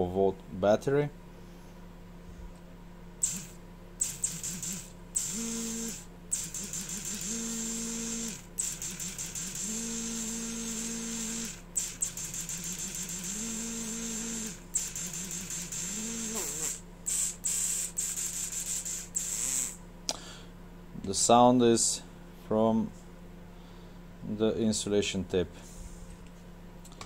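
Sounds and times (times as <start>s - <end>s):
electric motor spinning up: 3.2s - 19.8s
steady high-pitched whine: 3.2s - 20.0s.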